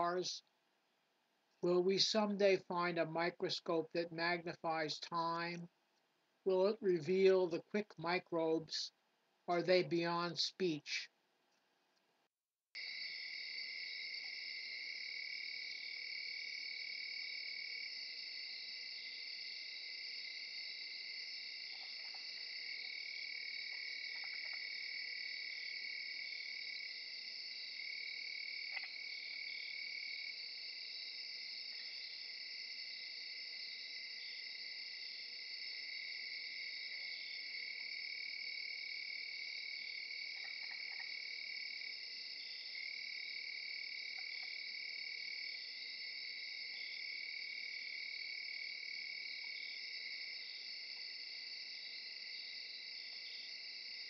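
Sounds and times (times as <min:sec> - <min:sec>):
insects singing: 0:12.8 - 0:54.0.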